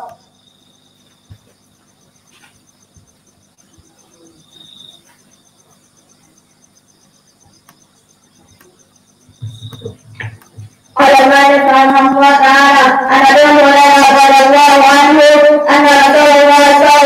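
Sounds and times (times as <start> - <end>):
insect chirping: 0.0 - 17.0
low knocks: 9.3 - 10.8.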